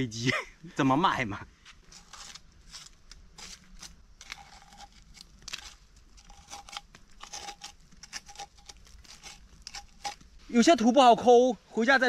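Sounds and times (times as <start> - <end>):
soil scraped off tubers by hand: 1.6 - 10.9.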